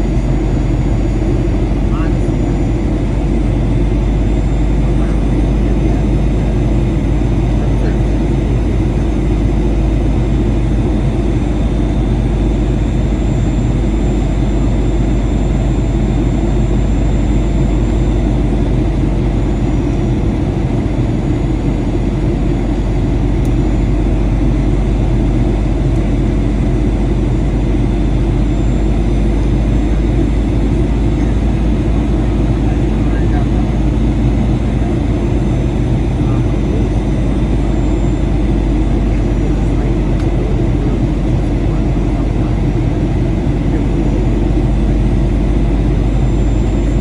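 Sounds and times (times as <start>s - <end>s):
jet engines humming: 0.0s - 47.0s.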